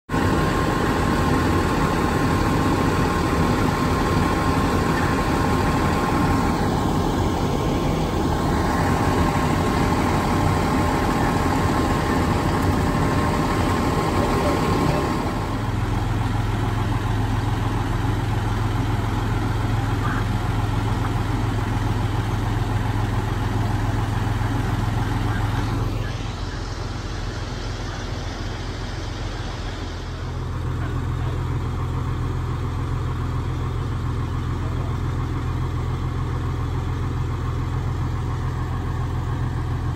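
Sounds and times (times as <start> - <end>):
diesel engine idling: 0.0 - 39.9
constant whine: 0.1 - 39.9.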